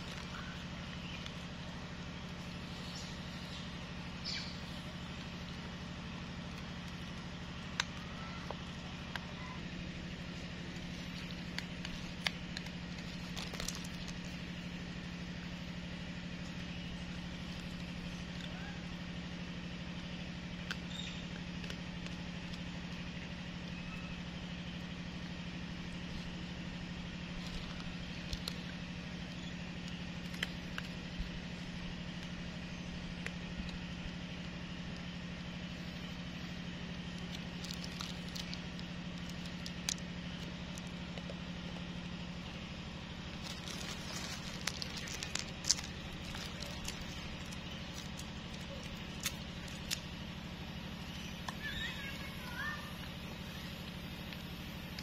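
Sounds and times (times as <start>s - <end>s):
low mechanical hum: 0.0s - 55.0s
light clicks and crackles: 10.1s - 14.7s, 27.2s - 35.2s, 36.0s - 50.3s.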